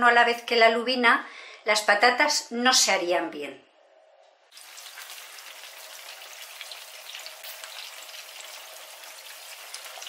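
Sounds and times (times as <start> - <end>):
potatoes frying in oil: 4.5 - 10.0.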